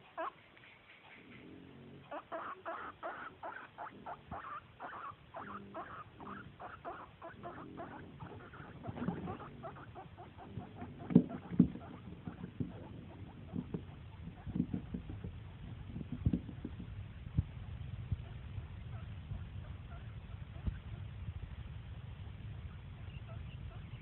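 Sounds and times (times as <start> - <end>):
guinea pig squeaking: 0.0 - 16.9, 18.2 - 21.0, 22.6 - 24.0.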